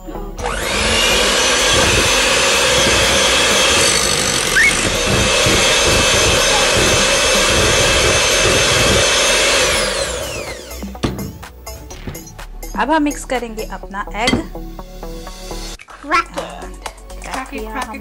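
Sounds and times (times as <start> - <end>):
electric hand mixer running: 0.4 - 11.2.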